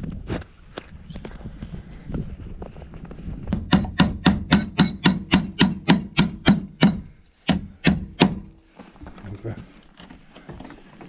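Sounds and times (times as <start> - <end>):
rapid sharp knocks: 3.6 - 8.5.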